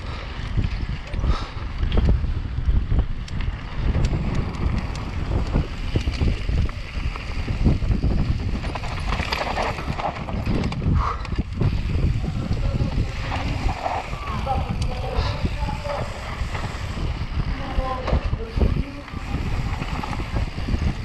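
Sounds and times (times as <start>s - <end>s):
wind rumbling on microphone: 0.0s - 21.0s
bike rattling and knocking: 0.1s - 21.0s
tyres running over dirt and stones: 0.2s - 21.0s.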